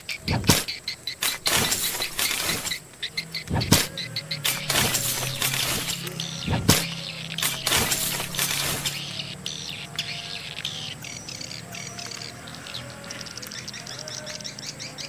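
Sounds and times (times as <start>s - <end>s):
low hum: 0.0s - 0.7s, 1.3s - 9.0s
sharp crackling bursts: 0.0s - 9.3s
swiftlet call high chirps: 0.0s - 15.0s.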